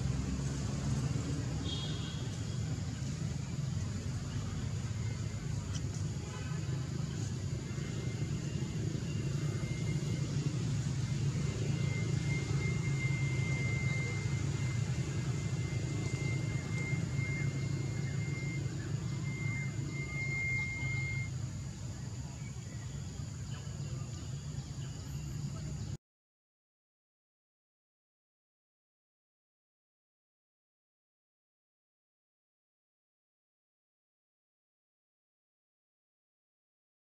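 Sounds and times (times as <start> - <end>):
steady low rumble: 0.0 - 24.8.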